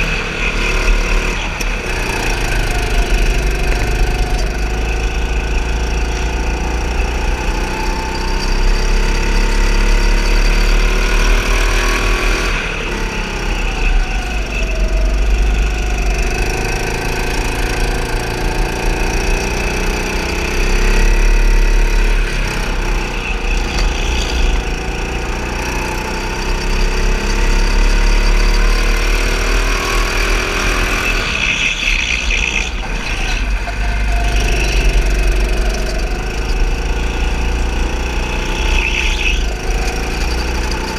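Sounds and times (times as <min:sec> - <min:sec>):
go-kart engine revving: 0:00.0 - 0:40.9
tyre squeal: 0:13.4 - 0:28.8, 0:29.9 - 0:40.9.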